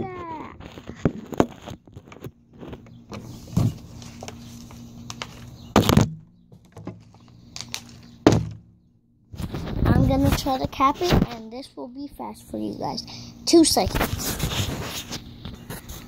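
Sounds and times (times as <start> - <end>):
knocks and thuds from handling: 0.9 - 3.8, 5.7 - 7.2, 8.2 - 8.8.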